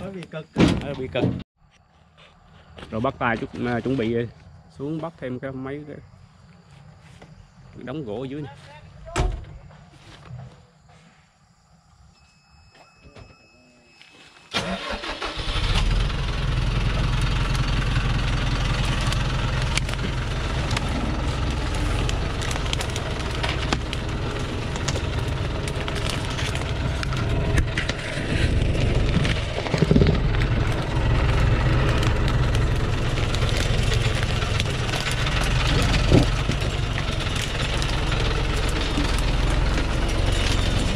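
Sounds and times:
diesel truck engine starting: 14.5 - 40.9.

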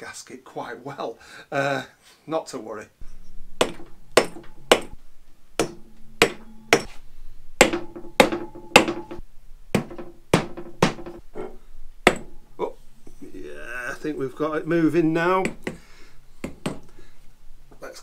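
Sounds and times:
rubber mallet tapping metal: 3.6 - 5.0, 5.6 - 7.0, 7.6 - 12.6, 15.4 - 15.8, 16.4 - 16.9.

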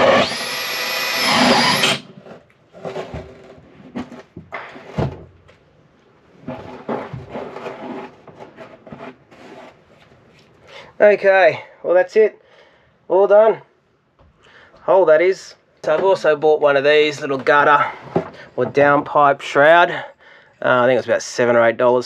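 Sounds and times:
drill with hole saw cutting wood: 0.0 - 2.2
wooden knocks and clatter: 2.2 - 5.6.

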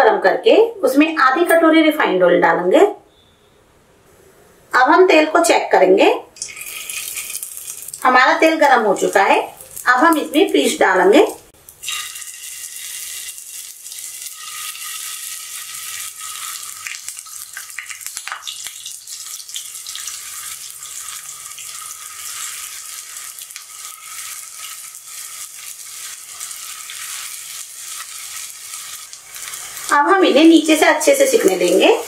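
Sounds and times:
food sizzling in oil: 6.4 - 32.0.

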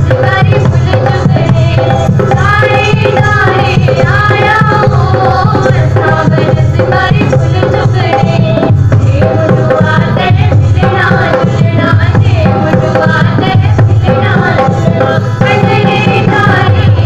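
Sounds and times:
driving drum rhythm: 0.0 - 17.0.

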